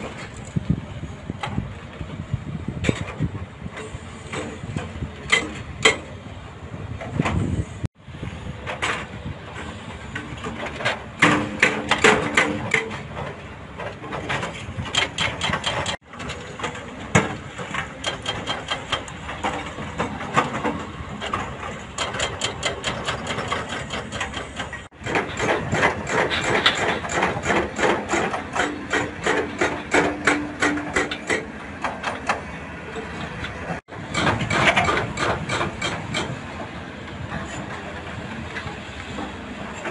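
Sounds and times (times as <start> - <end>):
diesel engine running: 0.0 - 39.9
hydraulic breaker pounding rock: 8.6 - 39.9.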